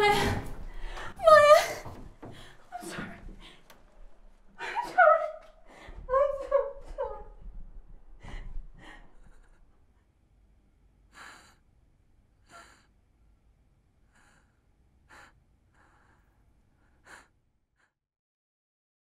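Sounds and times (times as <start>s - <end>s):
woman breathing sharply: 14.1s - 18.0s.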